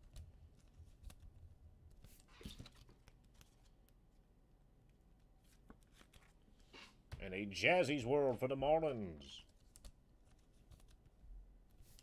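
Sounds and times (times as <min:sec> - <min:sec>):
trading cards rustling and clicking: 0:00.0 - 0:04.0.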